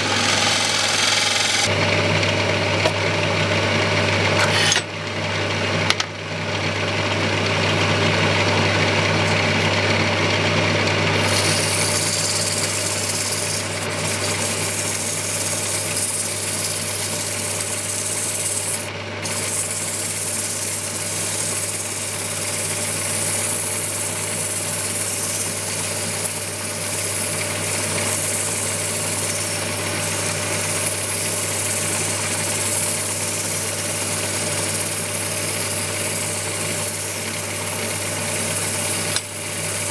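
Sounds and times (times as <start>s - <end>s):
wood lathe motor humming: 0.0s - 4.8s, 7.6s - 39.9s
hand tool hissing on turning wood: 11.2s - 39.9s.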